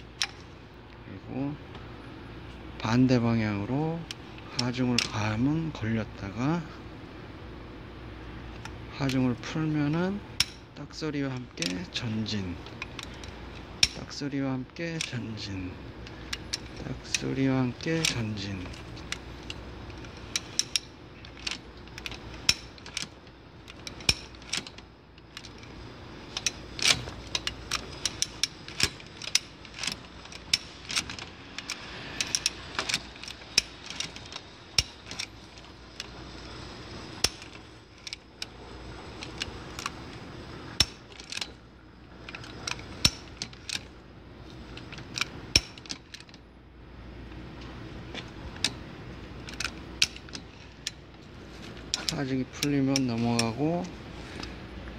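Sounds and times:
sharp metallic ratchet clicks: 9.0s - 14.2s, 14.8s - 40.1s, 40.7s - 41.6s, 42.2s - 43.9s, 44.6s - 46.4s, 48.5s - 51.1s.

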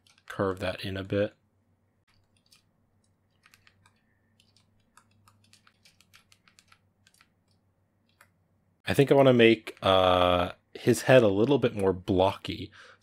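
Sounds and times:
tablet pen clicks and taps: 2.3s - 8.4s.

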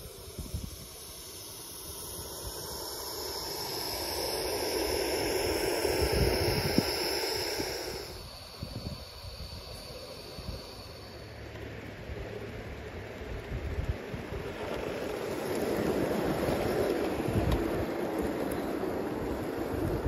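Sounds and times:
steam locomotive hissing: 0.0s - 20.0s
wind buffeting microphone: 4.0s - 10.7s, 13.2s - 20.0s.

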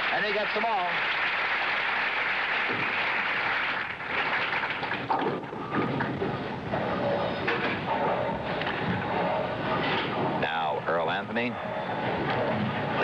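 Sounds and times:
crowd applauding: 0.0s - 5.1s.

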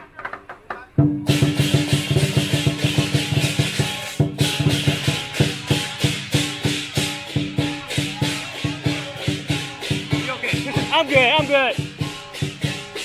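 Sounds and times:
drum beating even rhythm: 0.9s - 13.0s
cymbals clashing: 1.1s - 13.0s.

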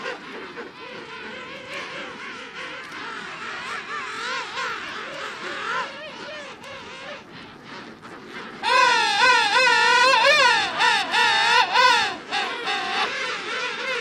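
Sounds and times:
penguin colony calling: 0.0s - 14.0s
loud close penguin call: 8.6s - 14.0s.

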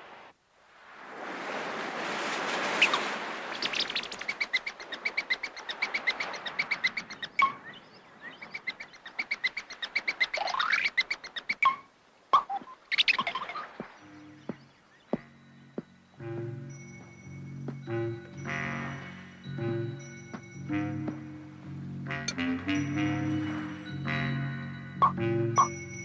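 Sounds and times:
surf washing in: 0.0s - 8.6s.

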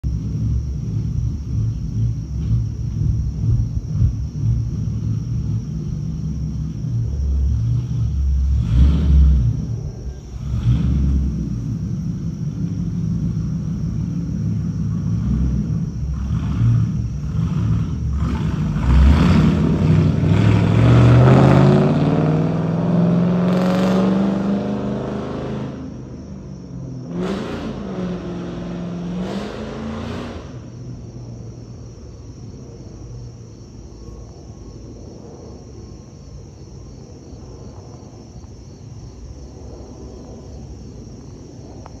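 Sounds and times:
jet airliner rumbling overhead: 0.0s - 20.7s, 30.5s - 42.0s.

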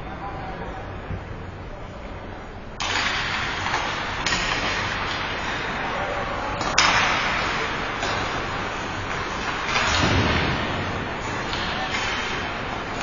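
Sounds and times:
sharp crack: 6.6s - 13.0s.

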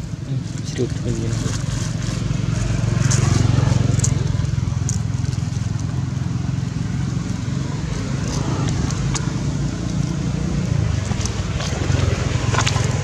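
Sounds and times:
low engine rumble: 0.0s - 13.0s
plastic bag crackling: 0.7s - 3.5s.

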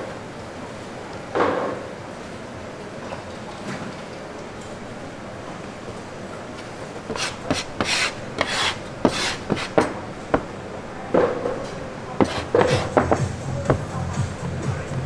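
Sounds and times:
dough rubbing on wooden board: 7.1s - 10.0s, 12.2s - 13.4s.

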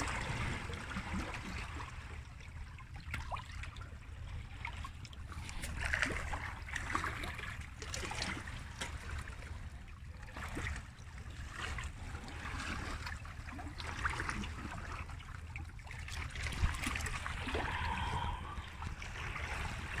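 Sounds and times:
water sloshing among rocks: 0.0s - 20.0s
wind rumble on microphone: 16.2s - 20.0s.

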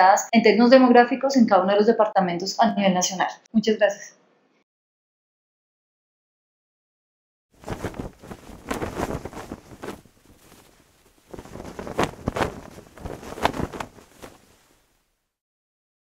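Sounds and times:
rushing noise with crackles: 7.6s - 15.0s.

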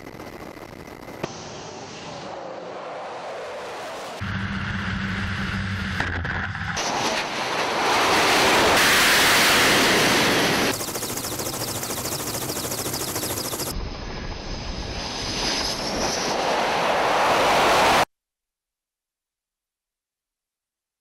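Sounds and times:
jet engines roaring: 1.0s - 6.1s, 6.7s - 13.7s, 14.5s - 18.1s.

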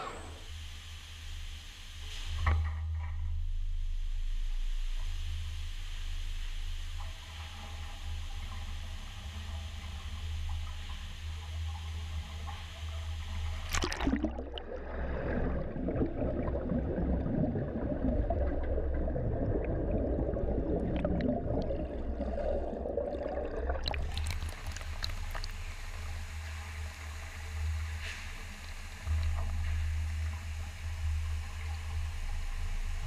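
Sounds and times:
low hum: 2.5s - 33.0s
underwater gurgling: 12.3s - 27.9s
water spraying and splashing: 23.8s - 26.1s.

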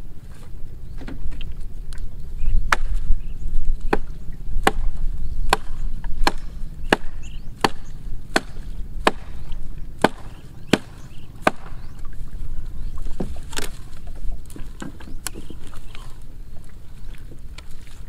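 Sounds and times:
blade chopping branch: 2.7s - 3.1s, 3.8s - 12.0s, 13.2s - 13.8s.

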